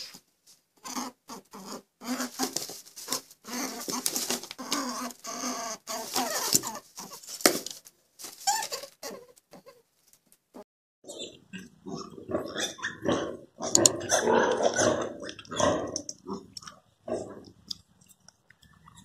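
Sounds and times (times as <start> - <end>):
guinea pig squeaking: 0.8 - 7.3, 8.4 - 9.8, 11.1 - 17.4.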